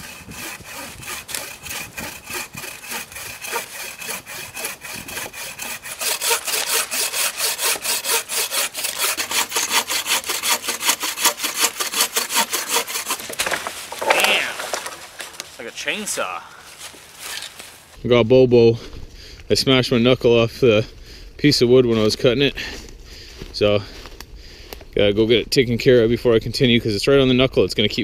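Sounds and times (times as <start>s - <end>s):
bucksaw cutting log: 0.0s - 15.5s.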